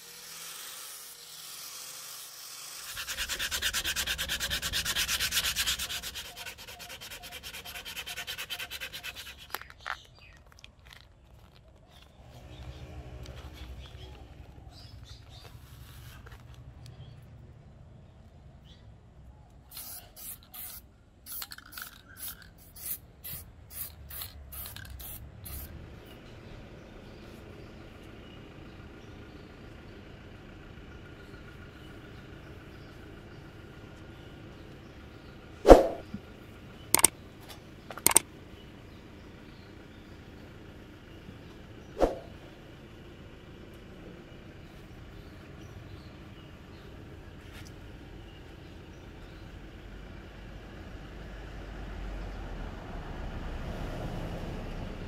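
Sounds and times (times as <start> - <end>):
scratchy strokes: 2.8 - 10.1.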